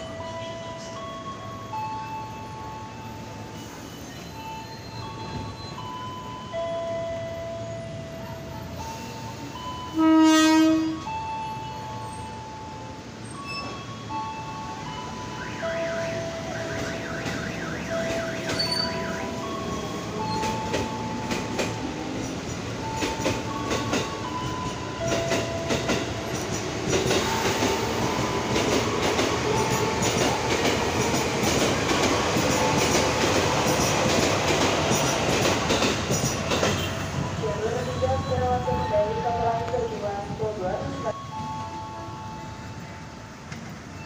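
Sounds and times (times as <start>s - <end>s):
electric train moving off: 11.0s - 44.0s
train wheels clicking: 16.6s - 37.2s.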